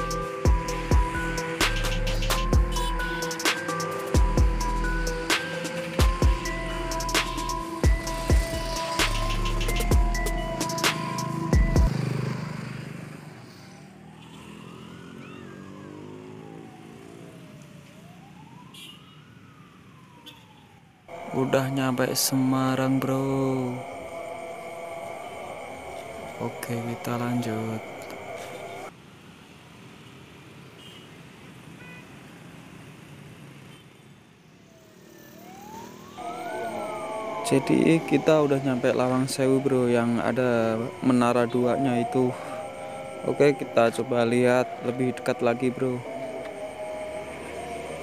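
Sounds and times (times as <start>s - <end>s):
music: 0.0s - 11.9s
siren wailing: 0.0s - 28.9s, 34.7s - 48.0s
faint city traffic hum: 6.4s - 48.0s.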